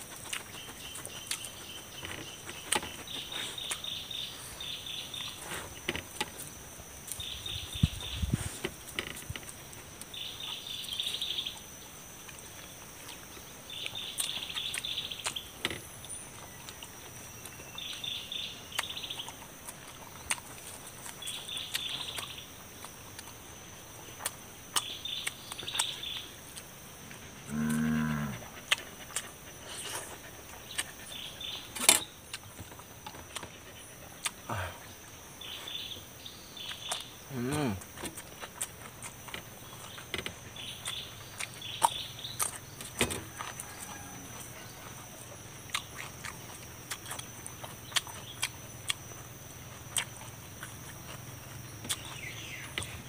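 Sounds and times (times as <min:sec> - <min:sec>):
person eating: 0:00.0 - 0:07.2, 0:24.1 - 0:35.1, 0:45.6 - 0:49.0, 0:51.8 - 0:53.0
low animal call: 0:27.0 - 0:31.7, 0:37.2 - 0:37.9.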